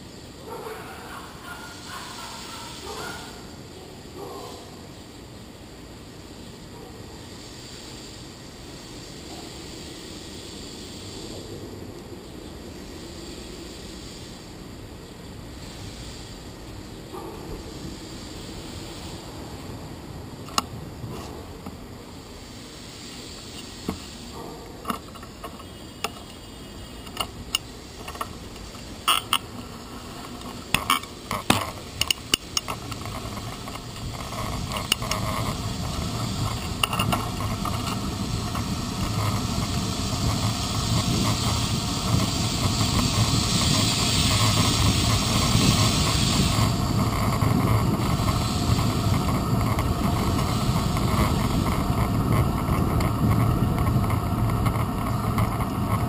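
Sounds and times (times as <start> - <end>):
tyre and wind noise: 15.1 - 56.0
bicycle rattling: 23.1 - 56.0.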